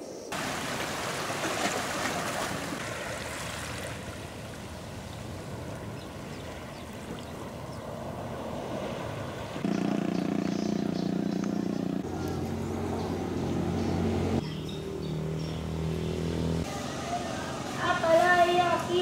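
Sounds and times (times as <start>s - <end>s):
small waves lapping over rocks: 0.4s - 7.7s.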